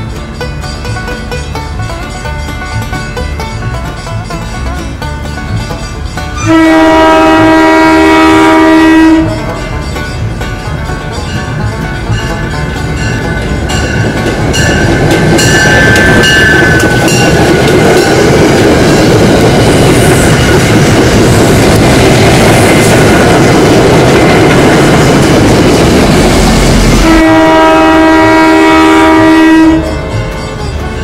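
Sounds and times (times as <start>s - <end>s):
train wheels rolling over rails: 0.0s - 31.0s
train horn long chord: 6.4s - 9.8s, 26.9s - 31.0s.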